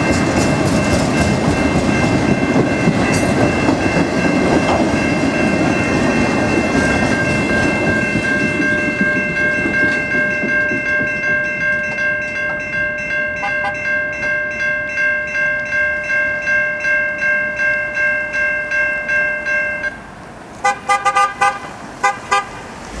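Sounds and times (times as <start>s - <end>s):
railroad crossing bell ringing: 0.0s - 20.2s
car horn honks: 20.6s - 22.6s.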